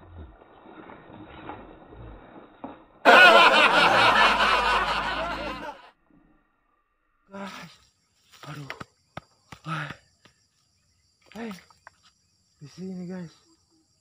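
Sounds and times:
loud laughter sound effect: 3.1 - 5.9.

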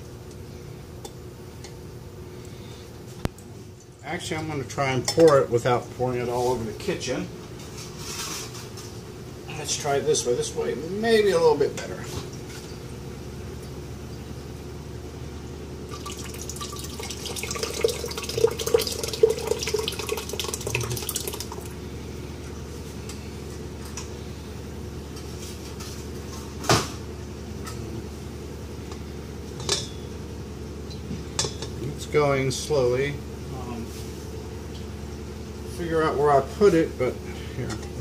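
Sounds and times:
liquid pouring and splashing: 15.9 - 21.8.

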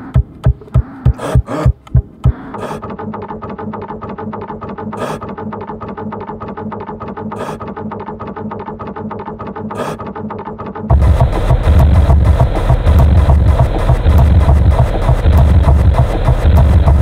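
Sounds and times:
scanner motor buzzing whine: 10.9 - 17.0.

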